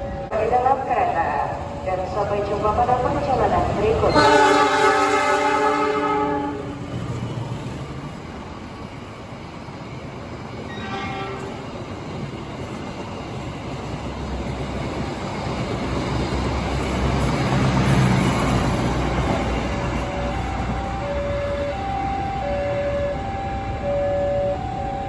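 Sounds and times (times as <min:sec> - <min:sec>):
train wheels rumbling on rails: 0:00.9 - 0:23.8
short train horn toot: 0:04.1 - 0:06.6, 0:10.7 - 0:11.6.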